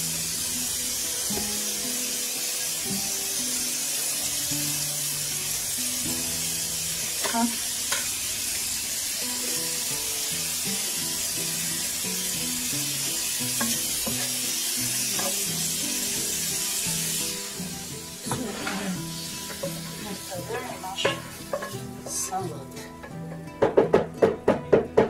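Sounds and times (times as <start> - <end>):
vegetables sizzling in hot oil: 0.0 - 23.9
background music: 0.0 - 25.0
spatula knocking against pan: 21.0 - 21.8, 23.5 - 25.0.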